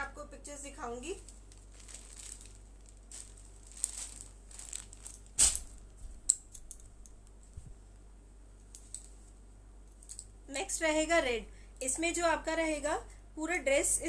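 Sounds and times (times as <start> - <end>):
cloth rustling: 0.9 - 6.3
rustling thump: 1.4 - 6.2.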